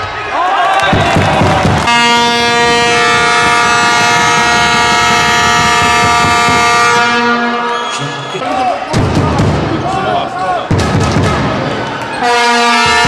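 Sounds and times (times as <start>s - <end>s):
arena horn blast: 1.8s - 8.3s, 12.2s - 13.0s.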